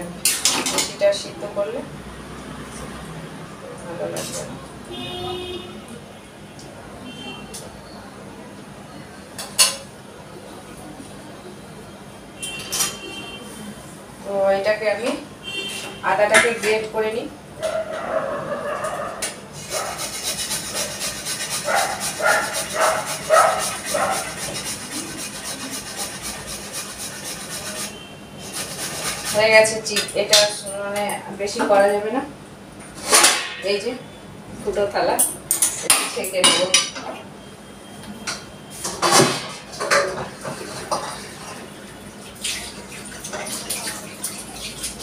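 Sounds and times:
ginger rasping on grater: 19.6s - 29.5s
water splashing: 40.6s - 45.0s.

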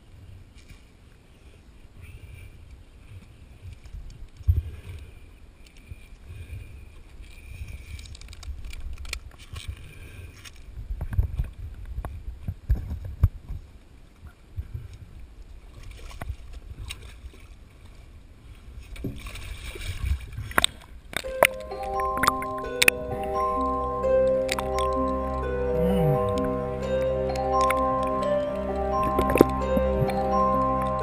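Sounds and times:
water lapping around boat: 0.1s - 21.2s.

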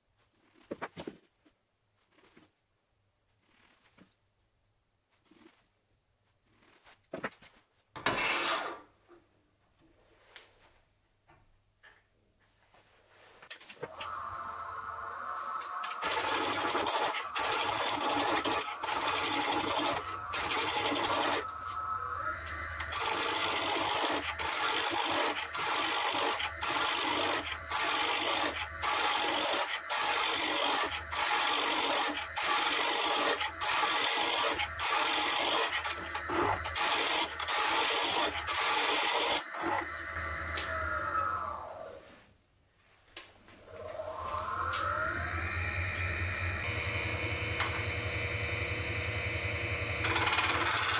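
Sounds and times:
lathe motor whine: 13.9s - 41.9s, 43.7s - 50.9s
gouge scraping wood on lathe: 15.6s - 39.8s.

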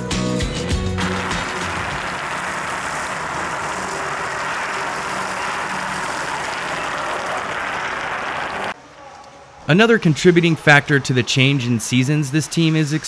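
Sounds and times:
ice resurfacing machine running: 0.6s - 8.8s.

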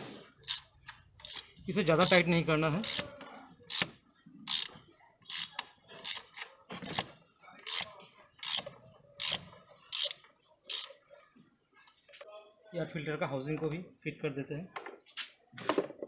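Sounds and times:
socket ratchet clicking: 0.4s - 2.2s, 3.7s - 3.9s, 4.5s - 6.2s, 7.7s - 10.9s.

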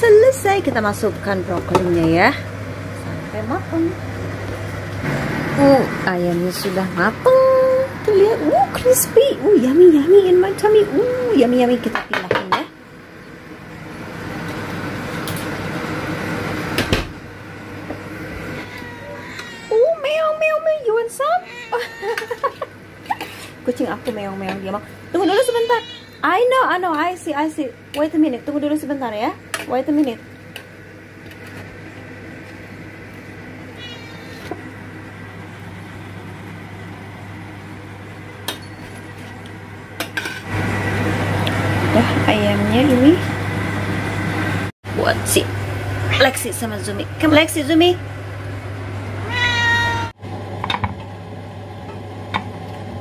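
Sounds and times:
appliance fan whirring: 0.0s - 53.0s
cat meowing: 18.5s - 19.9s, 21.4s - 22.4s, 25.2s - 26.3s, 33.8s - 34.5s, 49.2s - 50.2s.

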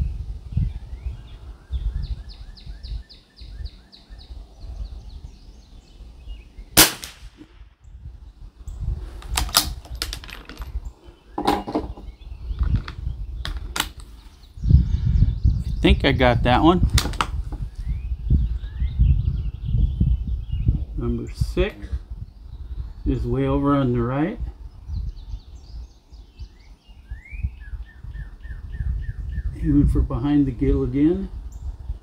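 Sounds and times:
rifle shot: 6.8s - 7.7s.

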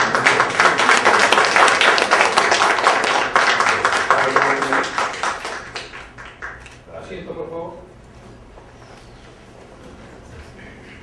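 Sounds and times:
people applauding: 0.0s - 6.8s.

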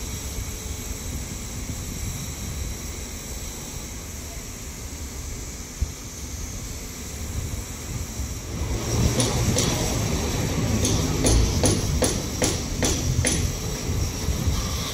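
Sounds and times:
rail machine engine running: 0.0s - 14.9s
sharp metal clanks: 10.8s - 13.6s.

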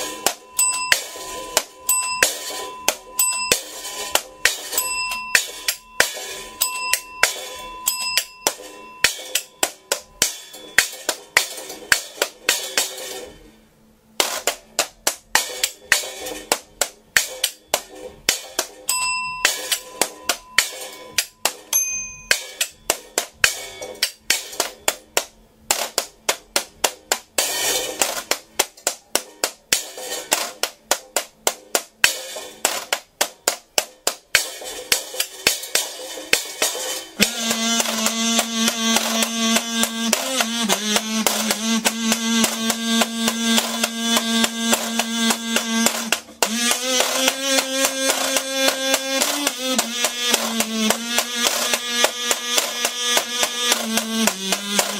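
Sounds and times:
kazoo humming notes: 37.2s - 54.9s.

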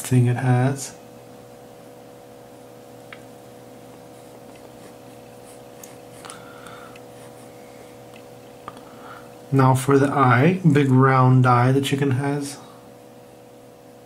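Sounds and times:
steady background hum: 0.0s - 14.0s.

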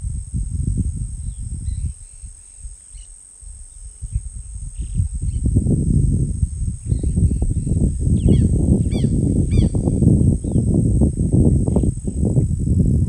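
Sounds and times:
high-pitched insect drone: 0.0s - 13.0s
low rumbling noise: 3.5s - 13.0s.

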